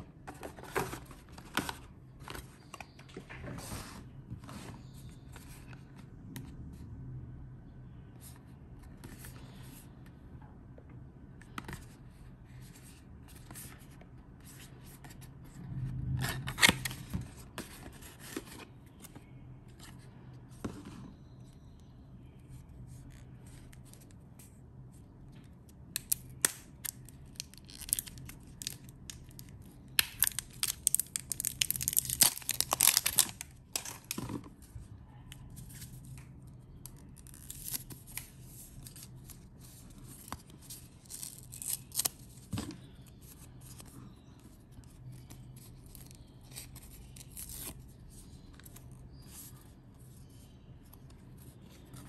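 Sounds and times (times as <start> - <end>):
wrapping crackling and tearing: 30.0 - 34.1.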